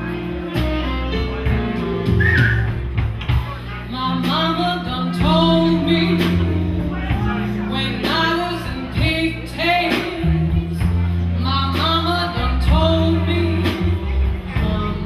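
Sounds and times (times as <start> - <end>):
bass notes: 0.0 - 15.0
woman singing into a microphone: 3.8 - 15.0.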